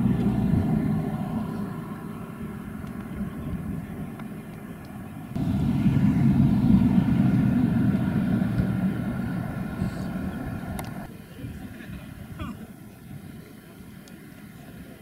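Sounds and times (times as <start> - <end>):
low engine drone: 0.0 - 11.2.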